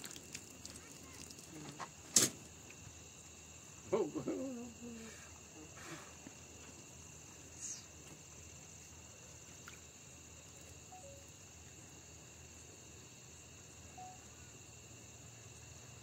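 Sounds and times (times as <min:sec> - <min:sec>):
crickets and insects trilling: 0:00.0 - 0:16.0.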